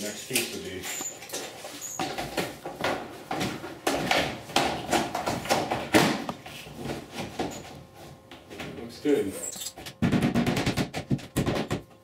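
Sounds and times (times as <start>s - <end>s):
vinyl siding panel knocking: 10.0s - 11.9s.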